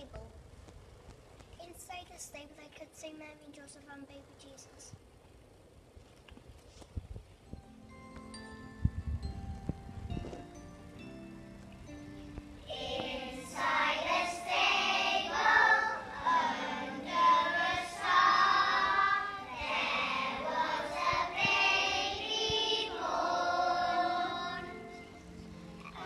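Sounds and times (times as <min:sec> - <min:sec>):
young children singing in unison: 0:12.6 - 0:25.1.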